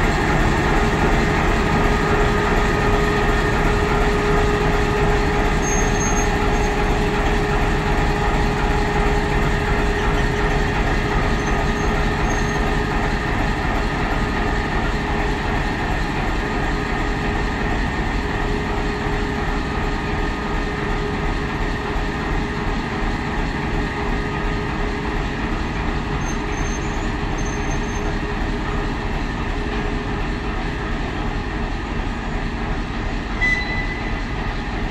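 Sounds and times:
diesel locomotive engine drone: 0:00.0 - 0:34.9.

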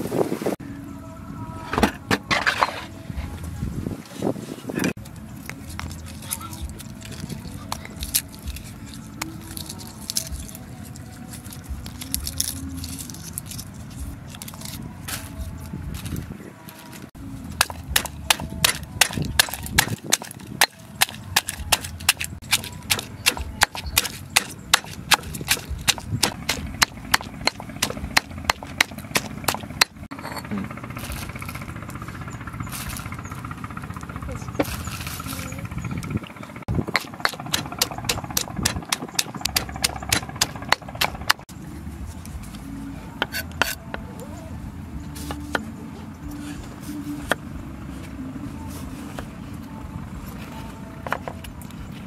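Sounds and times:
stone pestle pounding in mortar: 0:17.6 - 0:30.1, 0:36.7 - 0:41.4.

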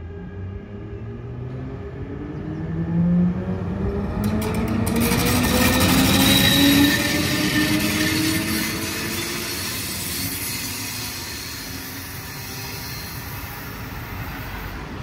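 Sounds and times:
electric train motor whine: 0:03.5 - 0:14.6
rush of wheels on rail: 0:03.6 - 0:15.0
wheels clicking over rail joints: 0:04.1 - 0:11.8.

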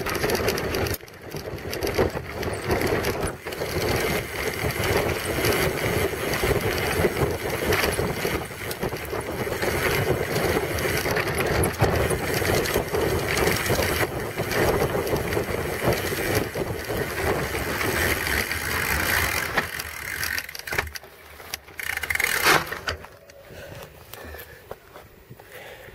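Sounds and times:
bike rattling: 0:00.0 - 0:25.9
bike tyre rumbling: 0:00.0 - 0:25.9.

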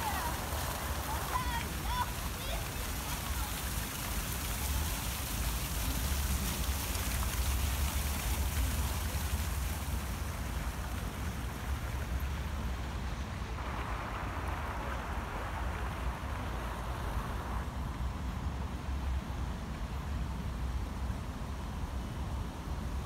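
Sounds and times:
steady outdoor hiss: 0:00.0 - 0:23.0
wind rumbling on microphone: 0:05.8 - 0:23.0.

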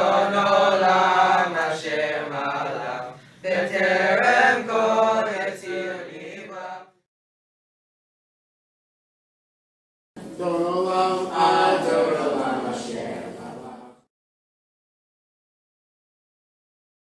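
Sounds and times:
boys chanting prayers together: 0:00.0 - 0:06.9, 0:10.2 - 0:14.1.

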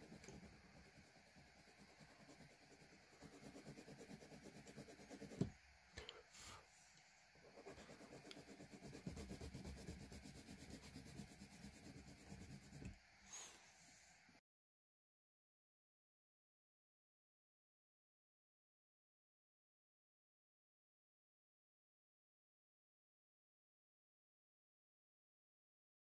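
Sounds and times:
pencil scratching on paper: 0:00.0 - 0:05.5, 0:07.5 - 0:13.6.

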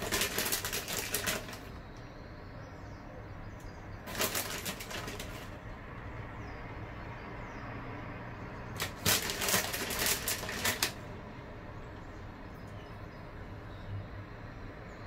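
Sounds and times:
crinkly rustling of cheese: 0:00.0 - 0:01.8, 0:04.0 - 0:05.6, 0:08.8 - 0:11.0.

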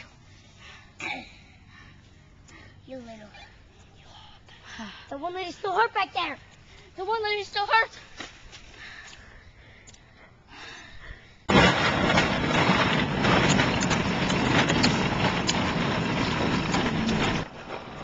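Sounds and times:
toy car rattling over pavement: 0:11.5 - 0:18.0.

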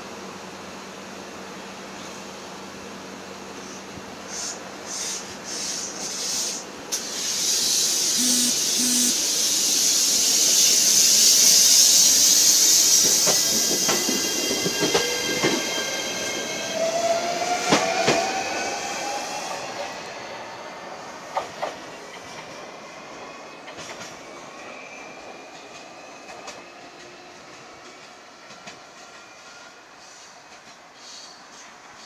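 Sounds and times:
air hiss: 0:03.6 - 0:14.3, 0:30.0 - 0:32.0
electric train motor whine: 0:07.7 - 0:19.8
short low beeps: 0:08.2 - 0:09.2
train wheel clacks: 0:10.2 - 0:15.7, 0:21.3 - 0:22.5.

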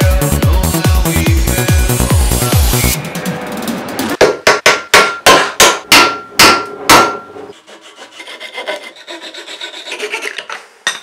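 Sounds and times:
hammer striking wooden dowel: 0:04.2 - 0:07.3
handsaw rasping: 0:07.5 - 0:10.6.

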